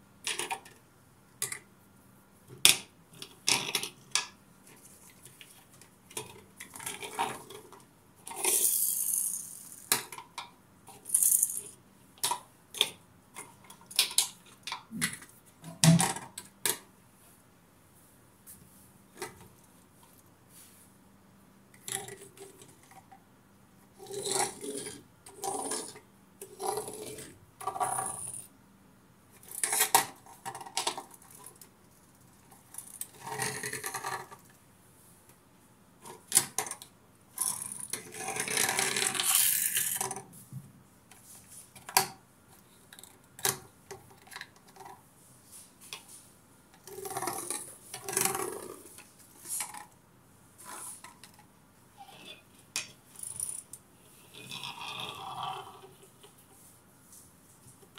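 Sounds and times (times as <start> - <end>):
toys clacking on a tabletop: 37.4 - 40.2
toys scraping on a tabletop: 37.4 - 40.2, 46.8 - 49.8.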